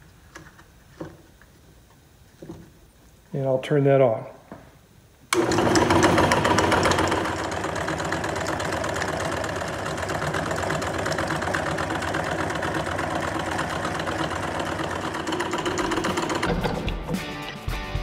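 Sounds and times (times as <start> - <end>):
electric drill motor running: 5.3 - 16.7
fast mechanical knocking: 5.4 - 16.9.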